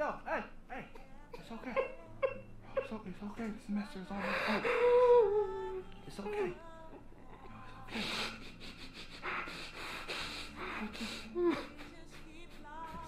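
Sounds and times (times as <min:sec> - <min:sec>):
breathy sobbing hisses: 0:04.1 - 0:06.6, 0:07.2 - 0:13.0
man whimpering: 0:04.1 - 0:06.6, 0:07.3 - 0:13.0.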